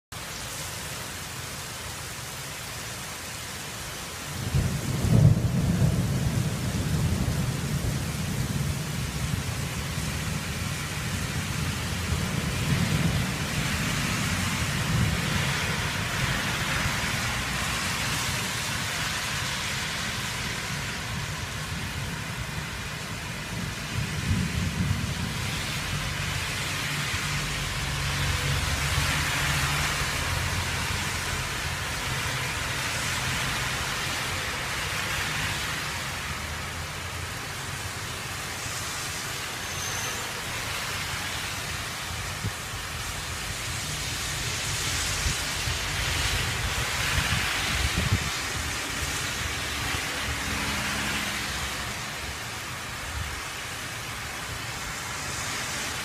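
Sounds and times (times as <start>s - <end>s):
heavy rain falling: 0.1s - 56.0s
thunder rumbling: 4.4s - 19.5s, 20.2s - 31.7s.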